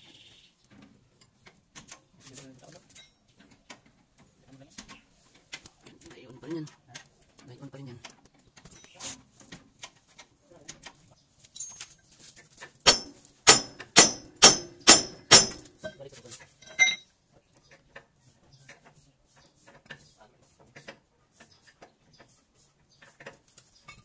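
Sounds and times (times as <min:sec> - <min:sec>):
hammer striking steel: 0:12.9 - 0:15.8.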